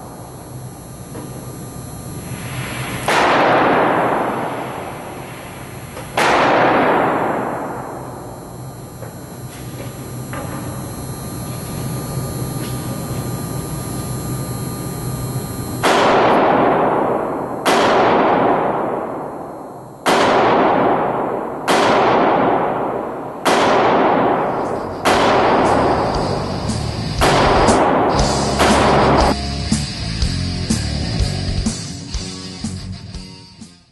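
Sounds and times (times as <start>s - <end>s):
steady hum: 0.0s - 33.9s
loud sharp bangs: 2.7s - 8.5s, 15.8s - 29.4s.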